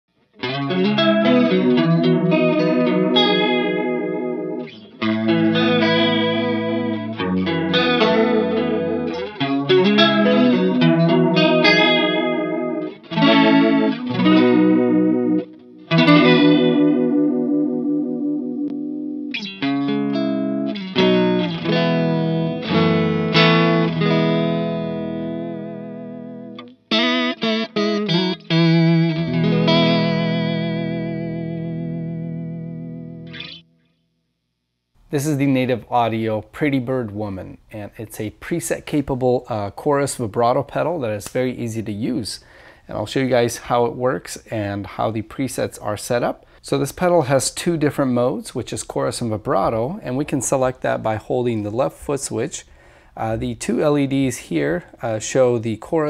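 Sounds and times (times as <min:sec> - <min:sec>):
electric guitar with chorus: 0:00.2 - 0:33.8.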